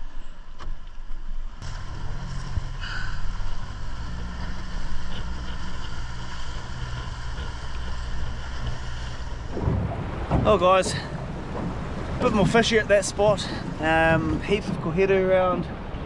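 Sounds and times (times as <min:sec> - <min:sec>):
water noise: 0:00.0 - 0:16.0
wind: 0:00.0 - 0:16.0
outboard motor running: 0:01.6 - 0:16.0.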